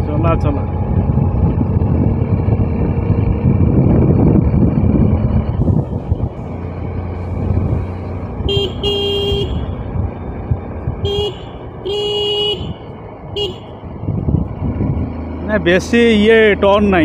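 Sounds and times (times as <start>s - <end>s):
ride rumble: 0.0s - 17.0s
wind: 0.0s - 17.0s
two-wheeler horn honking: 8.4s - 9.8s, 11.0s - 13.8s.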